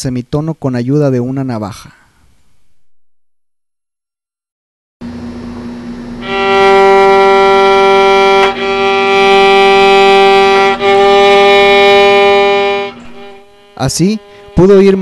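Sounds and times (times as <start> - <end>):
bowed violin notes: 6.2 - 15.0.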